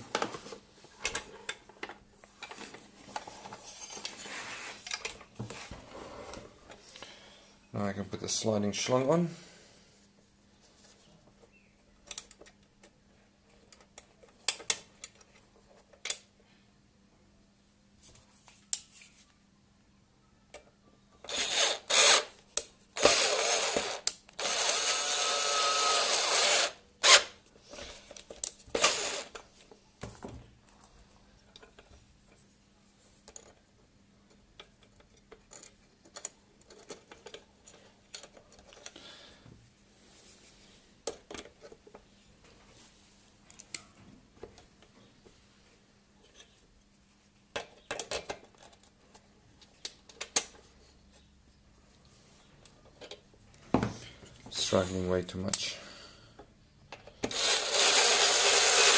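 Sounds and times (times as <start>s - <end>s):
clicks and knocks of parts: 13.6s - 16.3s, 33.2s - 39.0s, 41.0s - 42.1s, 47.5s - 51.2s.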